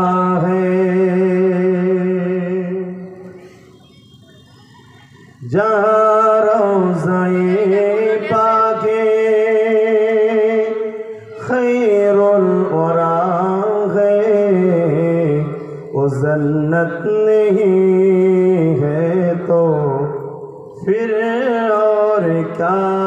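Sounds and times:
man singing into a microphone: 0.0 - 3.4, 5.4 - 23.0.

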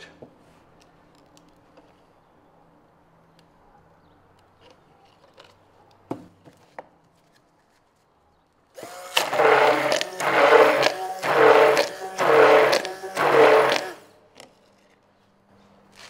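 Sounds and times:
electric drill mixing in surges: 8.8 - 14.1.

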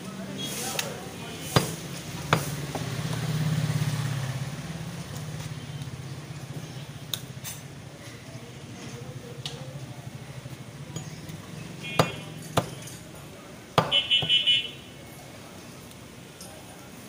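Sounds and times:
knife chopping meat on wood: 1.5 - 3.0, 11.9 - 12.9, 13.8 - 14.5.

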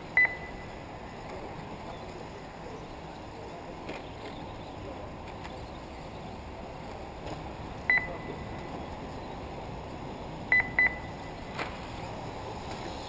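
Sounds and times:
steady background noise: 0.0 - 13.0
short high electronic beeps: 0.2 - 0.7, 7.9 - 8.4, 10.5 - 11.4.

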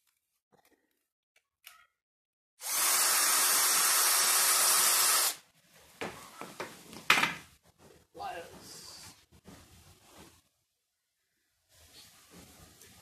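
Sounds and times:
cordless drill driving screw: 2.6 - 5.4.

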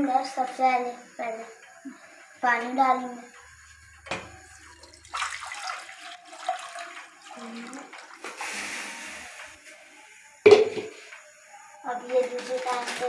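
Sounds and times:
water pouring into a pot: 3.8 - 9.6, 12.4 - 13.0.

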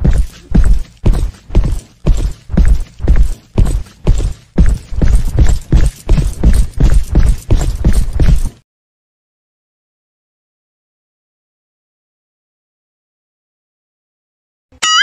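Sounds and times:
footsteps with deep thuds: 0.0 - 8.6.

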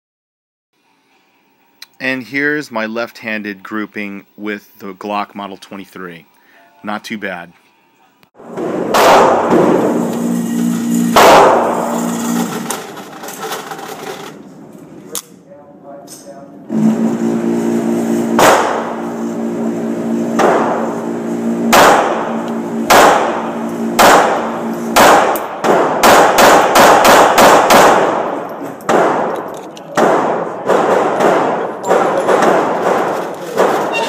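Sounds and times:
steady hum: 0.8 - 34.0
pistol shots indoors: 8.4 - 10.0, 11.2 - 11.8, 18.3 - 19.0, 21.7 - 33.9.

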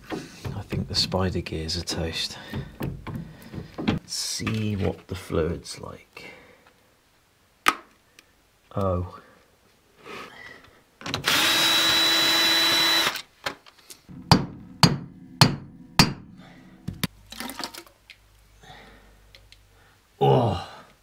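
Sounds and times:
power drill running: 11.2 - 13.2
sharp knocks on metal cover: 14.1 - 17.1.

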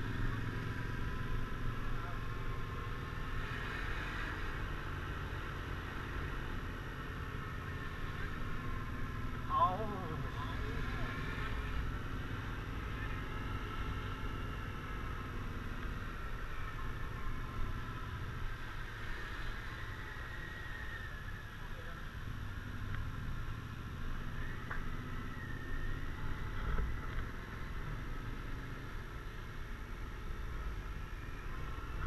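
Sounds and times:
scooter engine rumbling with whine: 0.0 - 32.0.

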